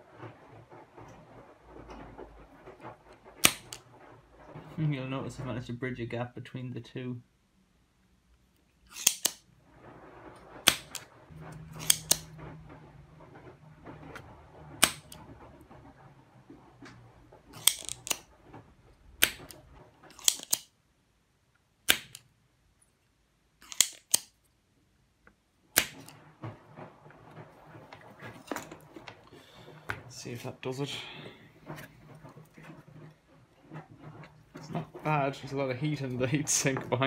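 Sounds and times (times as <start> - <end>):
desoldering pump snapping: 3.2 - 4.0, 8.8 - 9.5, 10.6 - 12.7, 14.1 - 15.2, 16.9 - 18.3, 19.2 - 20.7, 21.8 - 22.3, 23.6 - 24.4, 25.7 - 26.3.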